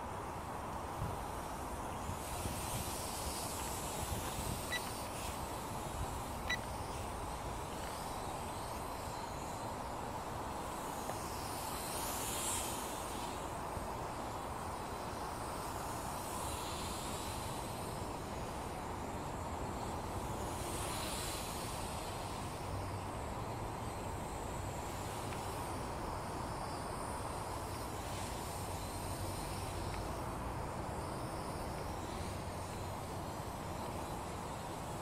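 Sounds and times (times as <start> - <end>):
steady hiss: 0.0 - 35.0
toy drone propellers buzzing: 1.1 - 22.7.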